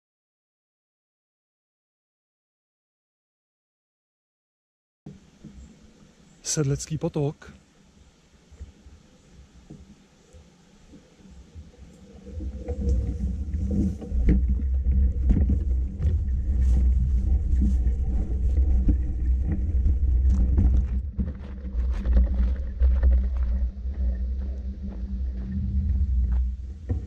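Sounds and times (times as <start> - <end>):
wind buffeting microphone: 11.6 - 27.0.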